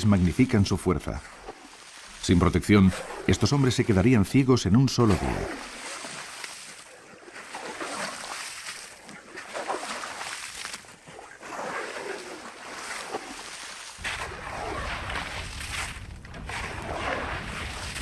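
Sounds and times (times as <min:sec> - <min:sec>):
shovel scraping wet salt crust: 0:11.4 - 0:18.0
low wind rumble: 0:14.0 - 0:18.0.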